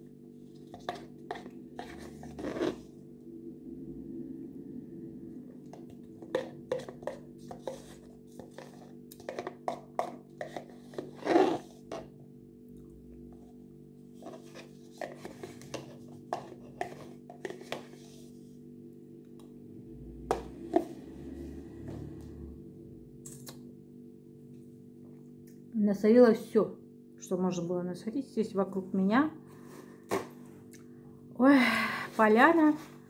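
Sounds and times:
steady low hum: 0.0 - 33.0
spoon scraping plastic tub: 0.5 - 3.0, 5.6 - 12.1, 14.2 - 18.4.

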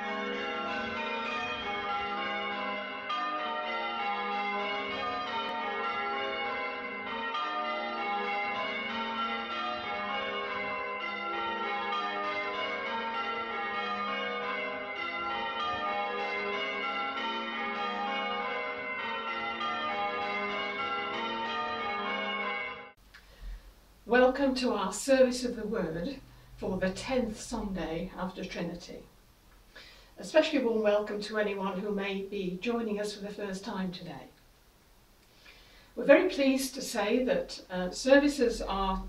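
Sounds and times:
church bells pealing: 0.0 - 23.0, 36.0 - 39.0.

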